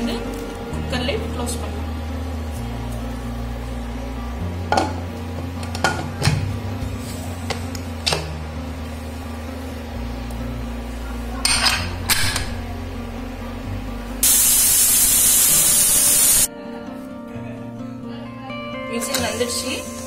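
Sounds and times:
pressure cooker steam hiss: 14.2s - 16.5s.

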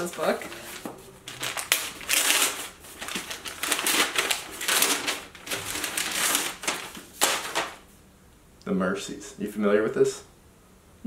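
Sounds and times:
wrapping paper tearing and crinkling: 0.0s - 7.9s.

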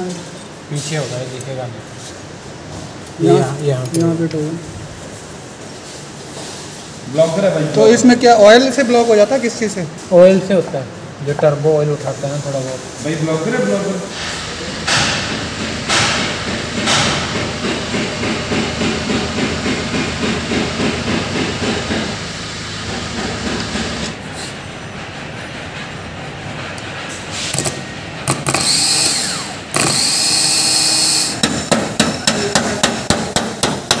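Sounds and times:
sharp knocks: 14.8s - 22.2s, 31.4s - 34.0s.

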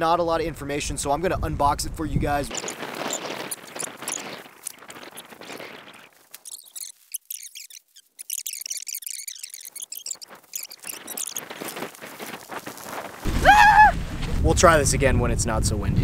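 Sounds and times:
nylon fabric rustling and flapping: 2.5s - 7.4s, 8.1s - 14.4s
squeaky chirps: 2.5s - 13.2s.

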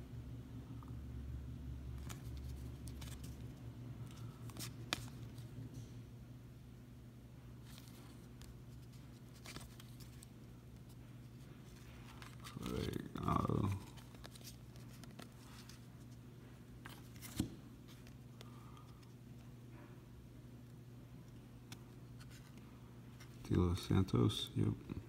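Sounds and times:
steady low hum: 0.0s - 25.0s
trading cards sliding: 7.6s - 16.2s, 16.8s - 19.1s.

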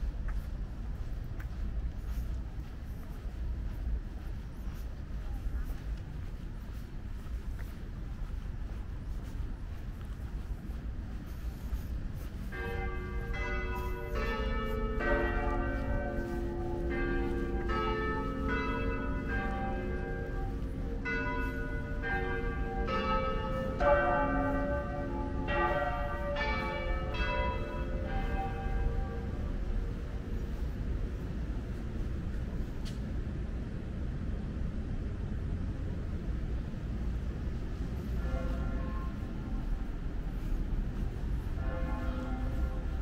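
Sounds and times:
tower bells ringing: 12.3s - 31.5s, 38.1s - 43.0s.

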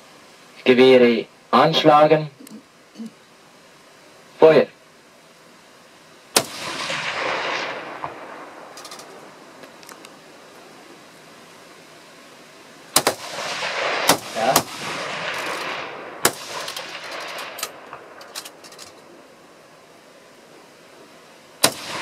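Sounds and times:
rifle shots: 6.3s - 9.5s, 12.9s - 19.0s, 21.6s - 22.0s
rolling echo: 6.4s - 9.8s.

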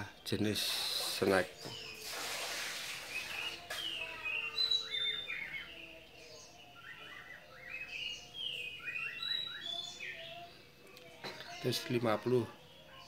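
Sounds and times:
bird chirping and whistling: 3.0s - 5.7s, 6.8s - 10.2s.

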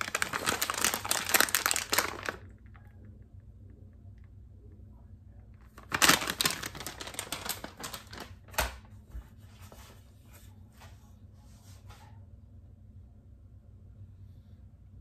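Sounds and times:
plastic bag crinkling: 0.0s - 2.8s, 5.6s - 8.8s.

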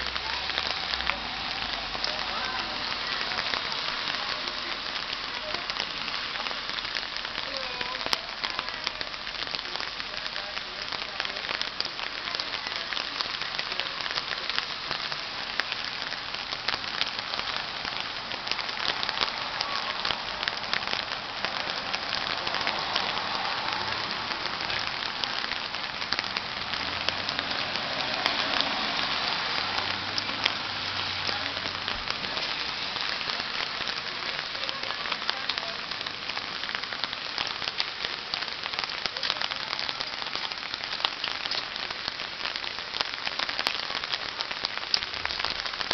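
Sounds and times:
steady rain falling: 0.0s - 45.9s.

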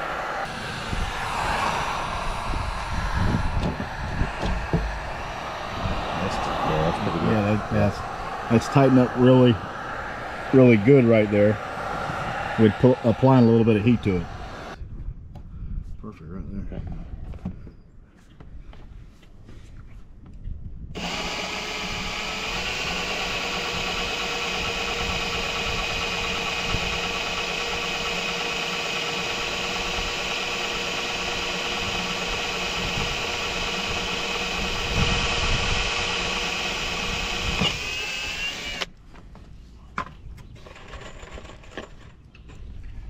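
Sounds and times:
cordless drill drilling into plastic: 21.0s - 38.9s.

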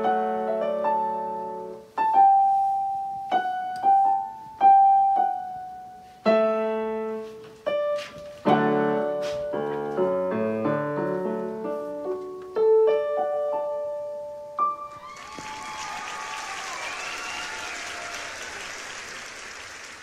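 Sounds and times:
electronic keyboard piano: 0.0s - 15.0s
applause: 15.0s - 20.0s.

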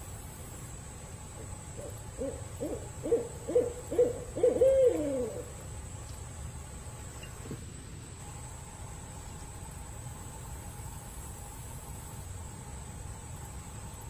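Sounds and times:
owl hooting: 1.4s - 5.6s.

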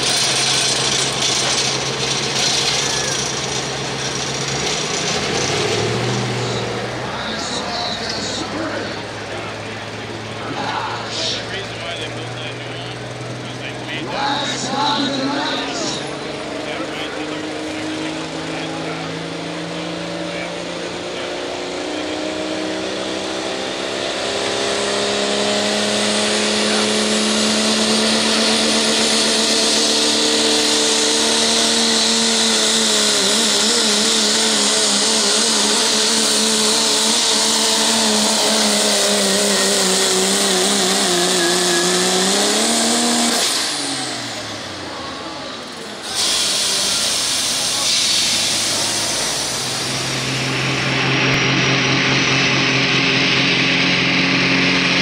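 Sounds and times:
diesel truck engine at full throttle: 0.0s - 55.0s
loud hiss: 46.0s - 50.3s.

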